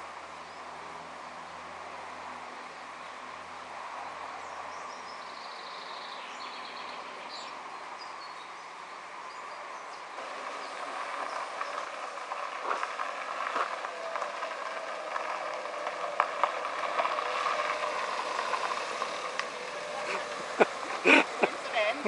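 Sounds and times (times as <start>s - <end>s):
steady outdoor hiss: 0.0s - 22.0s
birds chirping: 4.0s - 22.0s
car tyres crunching on gravel: 10.1s - 22.0s.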